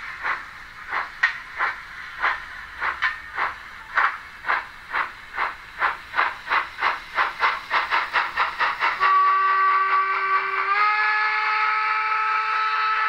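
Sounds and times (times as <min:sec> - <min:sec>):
steam exhaust chuffs from loudspeaker: 0:00.0 - 0:13.0
multi-tone steam whistle: 0:08.8 - 0:13.0.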